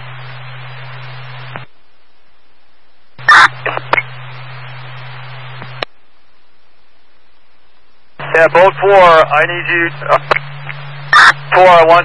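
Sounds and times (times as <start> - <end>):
radio static hiss and hum: 0.0 - 12.0
short radio blips: 3.2 - 4.2, 8.2 - 12.0
radio noise burst: 3.2 - 5.9, 8.2 - 12.0.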